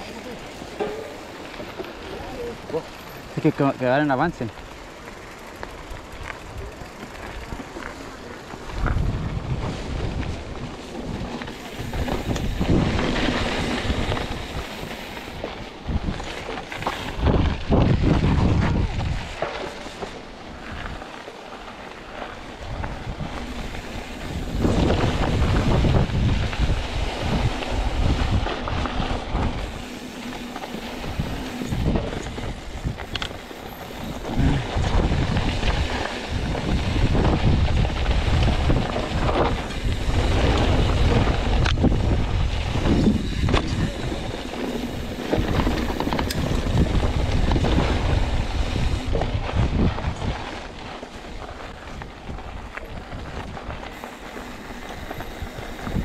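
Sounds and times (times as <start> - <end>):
bike clicks and rattles: 0.0 - 56.0
tyres rolling over dirt and rocks: 0.0 - 56.0
wind buffeting microphone: 8.6 - 19.4, 22.4 - 56.0.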